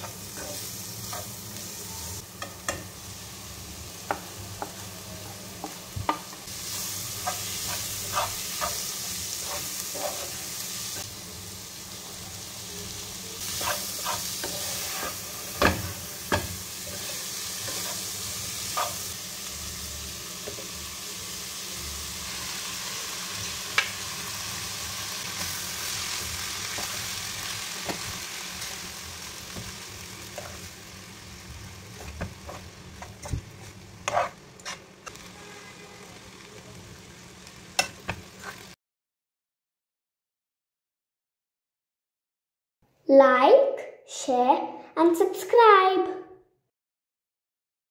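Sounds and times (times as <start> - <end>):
food sizzling in a pot: 0.0 - 38.8
metal utensils scraping a pot: 9.4 - 10.5, 34.0 - 35.2.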